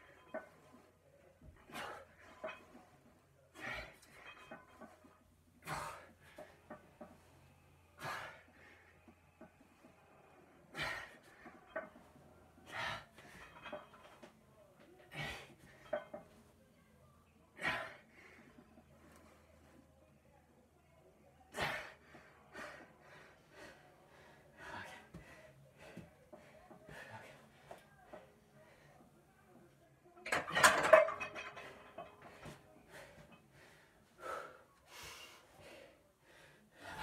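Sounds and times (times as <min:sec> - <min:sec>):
man breathing hard: 0:08.0 - 0:09.1, 0:21.6 - 0:27.8, 0:32.2 - 0:37.0.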